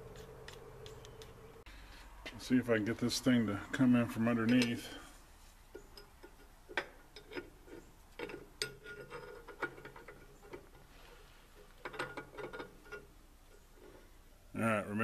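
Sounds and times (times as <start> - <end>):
light metal clicks and taps: 4.4 - 4.8, 5.7 - 10.8.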